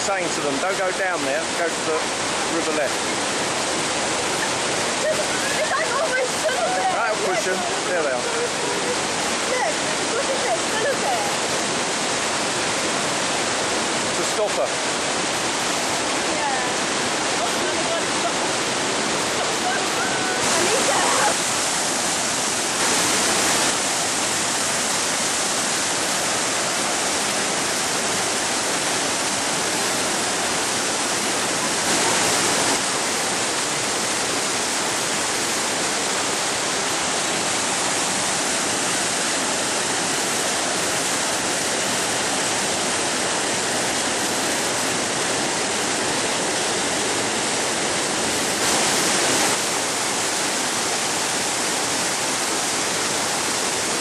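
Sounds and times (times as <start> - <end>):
whitewater rapids rushing: 0.0 - 54.0.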